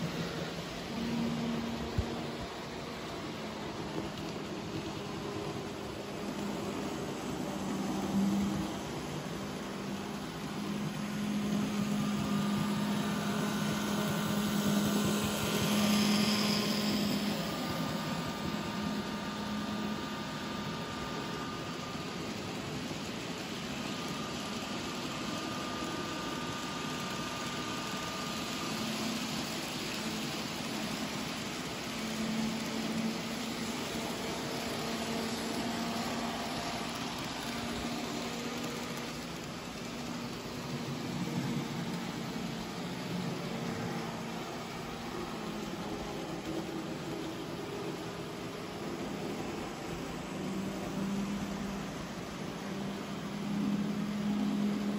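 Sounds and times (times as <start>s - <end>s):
model train motor humming: 0.0s - 54.9s
small wheels rattling on rails: 0.0s - 54.9s.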